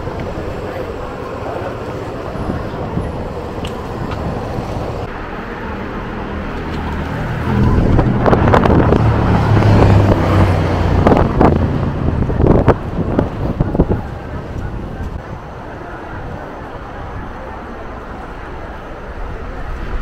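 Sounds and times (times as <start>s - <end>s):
city street traffic: 0.0s - 20.0s
vehicle engine close by: 1.6s - 15.2s.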